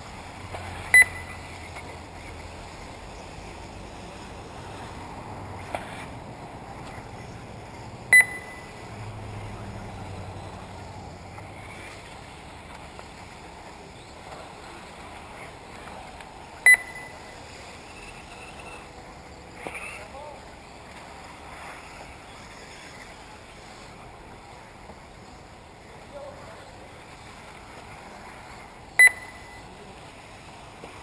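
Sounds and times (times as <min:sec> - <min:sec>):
outdoor track noise: 0:00.0 - 0:31.0
loud electronic beeps: 0:00.9 - 0:01.4, 0:08.1 - 0:08.8, 0:29.0 - 0:29.6.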